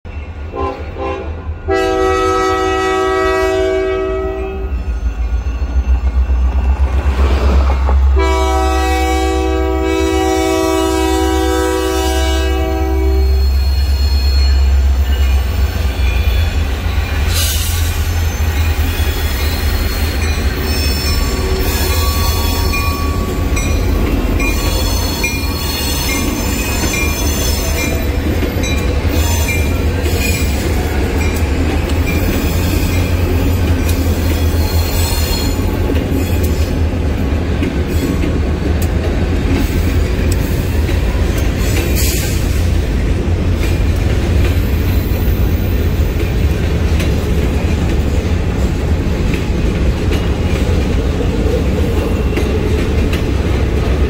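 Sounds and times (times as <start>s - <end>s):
locomotive horn chord: 0.5s - 4.8s, 8.1s - 13.4s
high wheel squeal: 4.6s - 7.0s, 13.0s - 23.8s, 24.4s - 31.4s, 34.2s - 35.7s.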